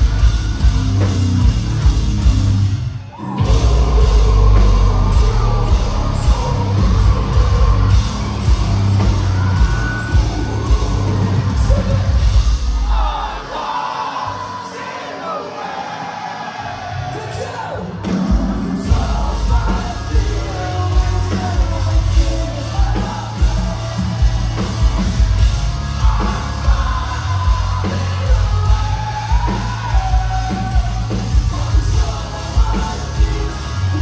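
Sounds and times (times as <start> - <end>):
low downtuned guitars: 0.0 - 13.5, 18.0 - 34.0
pounding drums: 0.0 - 13.8, 17.0 - 34.0
shouted vocals: 3.0 - 24.4.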